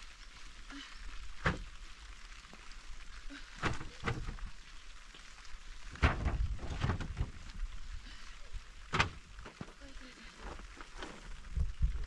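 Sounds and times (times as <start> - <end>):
faint steady hiss: 0.0 - 12.0
plastic cover rustling: 5.9 - 7.8, 8.8 - 12.0.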